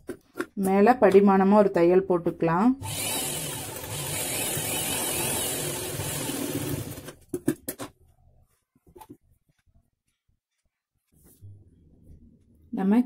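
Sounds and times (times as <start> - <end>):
sewing machine running: 2.8 - 7.2.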